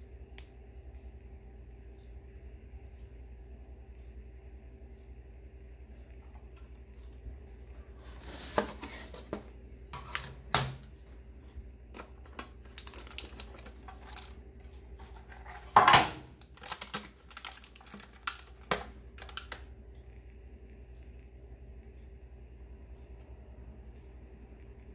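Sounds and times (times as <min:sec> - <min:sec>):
hard plastic packaging rattling: 0:11.9 - 0:19.6.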